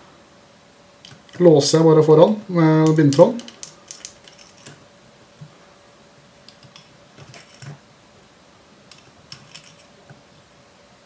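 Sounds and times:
small metal tools clicking: 2.8s - 4.8s.

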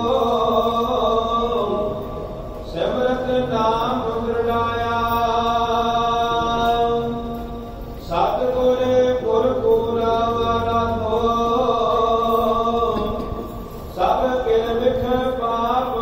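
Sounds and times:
voice chanting a hymn: 0.0s - 16.0s
sustained drone note: 3.8s - 14.3s.

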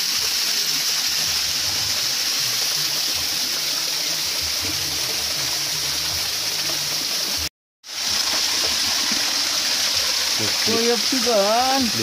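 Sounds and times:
stream water flowing: 0.0s - 12.0s.

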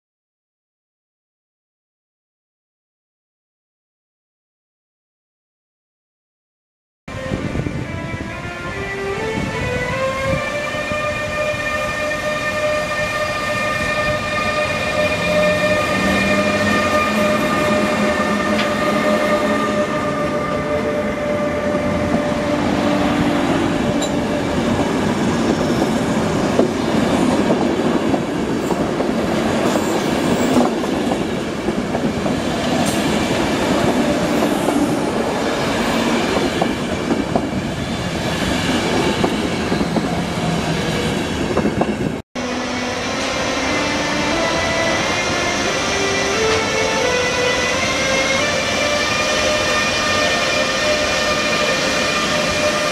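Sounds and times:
electric locomotive whining: 7.1s - 52.9s
rail-joint clatter: 18.5s - 18.8s, 23.9s - 24.3s, 27.4s - 33.2s.

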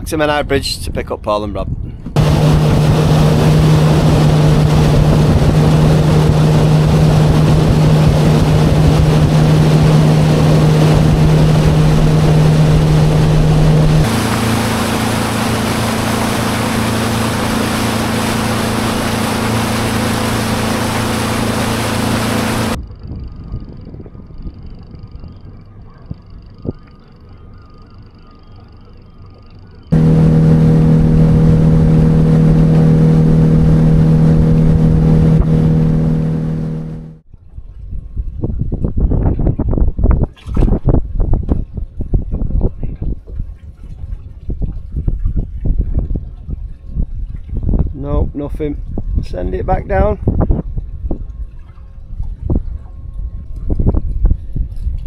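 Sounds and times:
wind on microphone: 0.0s - 26.9s, 30.0s - 55.0s
boat engine running: 2.1s - 22.8s, 29.0s - 37.2s
water rushing along hull: 2.1s - 22.8s, 29.9s - 37.2s.

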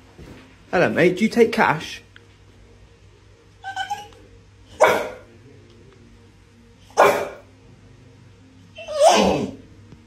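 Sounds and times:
dog whining: 3.6s - 4.2s, 8.8s - 9.6s
dog barking: 4.7s - 5.3s, 6.9s - 7.5s.

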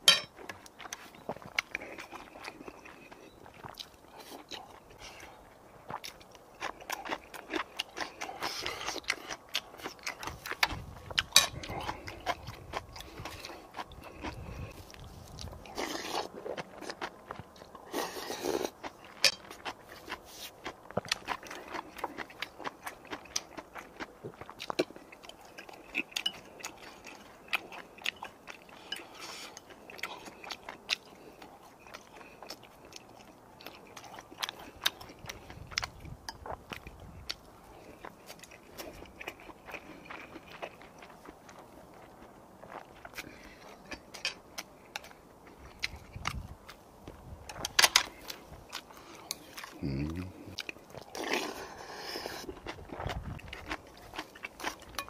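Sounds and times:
man biting and chewing food: 0.0s - 55.0s.

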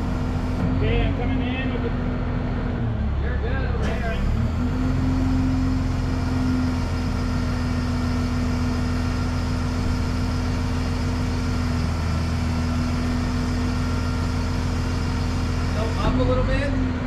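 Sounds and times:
constant hum: 0.0s - 4.6s
diesel engine running: 0.0s - 17.0s.

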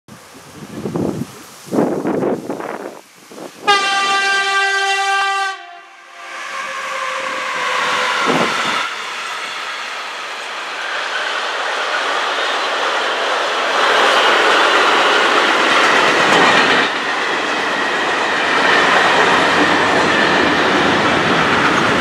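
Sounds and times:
freight train rumbling over rails: 0.1s - 22.0s
locomotive horn blast: 3.6s - 9.1s.

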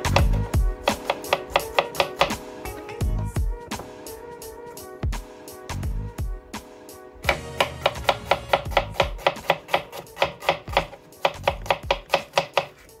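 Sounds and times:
knife chopping on cutting board: 0.0s - 3.1s, 7.2s - 13.0s.

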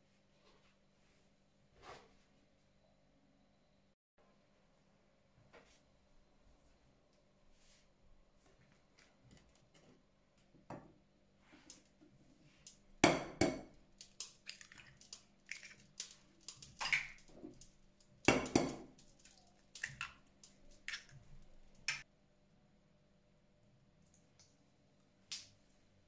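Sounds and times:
dishes knocking and clinking: 18.3s - 18.9s.

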